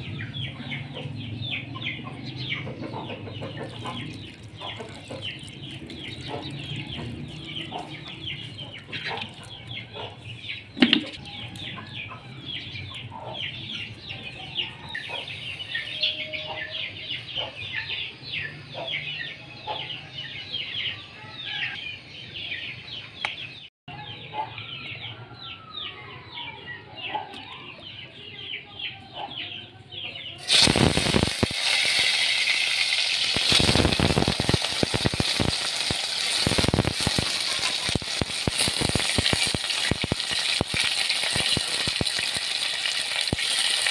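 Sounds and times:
birds chirping: 0:00.0 - 0:31.6
potatoes sizzling in hot oil: 0:30.4 - 0:43.9.

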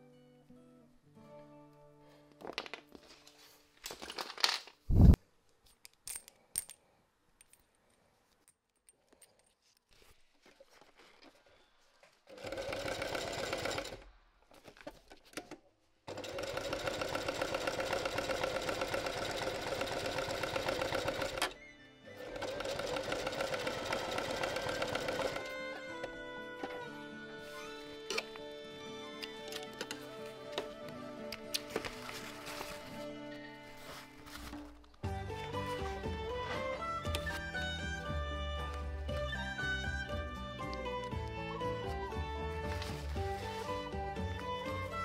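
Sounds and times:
sewing machine stitching: 0:12.3 - 0:14.1, 0:16.1 - 0:21.6, 0:22.2 - 0:25.5.

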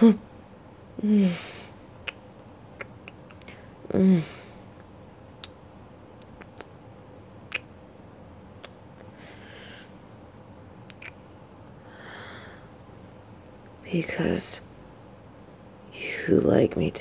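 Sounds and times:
soft breaths: 0:01.0 - 0:01.9, 0:09.0 - 0:10.2, 0:11.7 - 0:13.4
mouth clicks: 0:02.0 - 0:03.6, 0:06.2 - 0:06.8, 0:07.5 - 0:07.8, 0:10.8 - 0:11.2.

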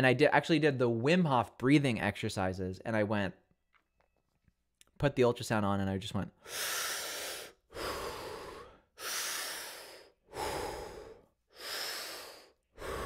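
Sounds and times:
man breathing hard through mouth: 0:06.4 - 0:13.0.

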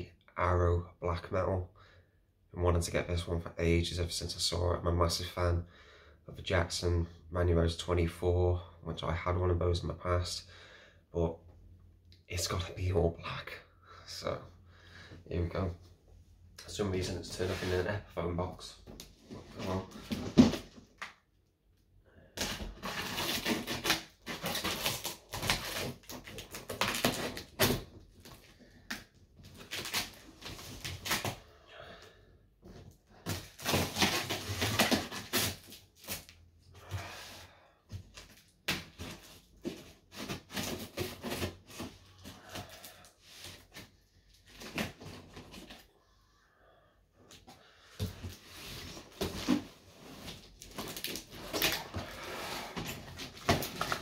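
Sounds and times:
packing tape tearing: 0:22.4 - 0:28.4, 0:29.5 - 0:31.4, 0:33.2 - 0:36.3, 0:50.6 - 0:52.2.

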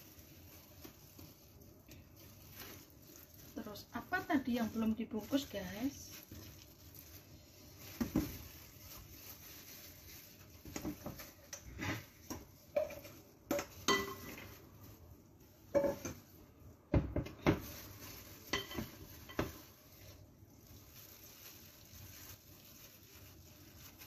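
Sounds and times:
dishes and utensils clinking: 0:12.7 - 0:14.6, 0:15.7 - 0:16.2, 0:18.4 - 0:19.6.

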